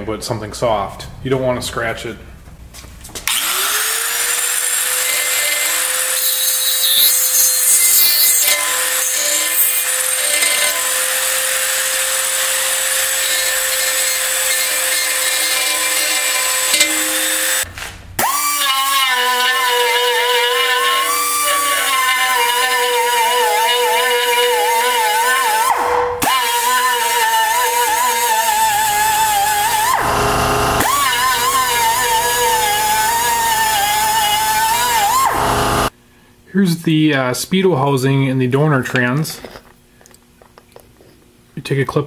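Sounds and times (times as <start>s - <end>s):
die grinder whining: 3.3s - 35.9s
burr scraping metal: 13.2s - 17.7s.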